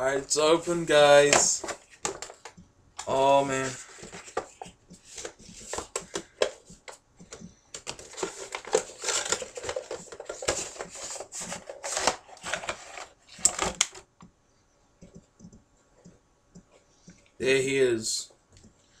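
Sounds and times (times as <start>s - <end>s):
cardboard and plastic crinkling: 0.5s - 2.5s, 3.1s - 7.0s, 7.8s - 14.1s.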